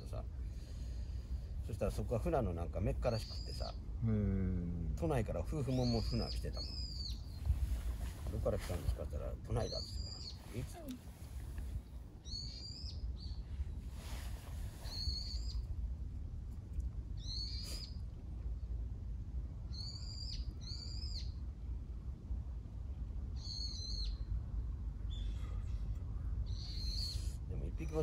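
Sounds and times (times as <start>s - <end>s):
low steady rumble: 0.0s - 28.0s
bird calling: 5.6s - 8.1s, 14.7s - 15.6s.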